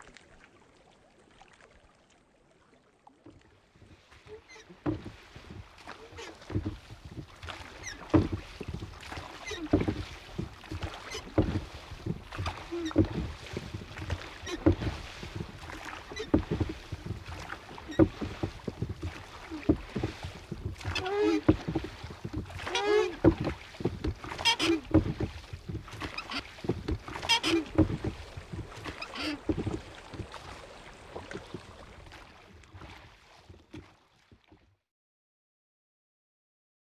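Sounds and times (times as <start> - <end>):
wood creaking and squeaking: 4.2 - 30.3
dull hollow knocks: 4.8 - 5.6, 6.4 - 30.3.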